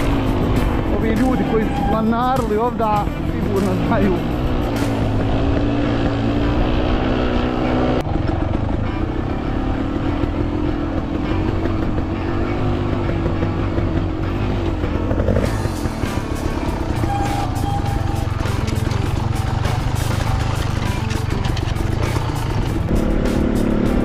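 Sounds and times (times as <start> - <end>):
motorcycle engine under load: 0.0 - 24.0
sharp ticks: 14.7 - 23.9.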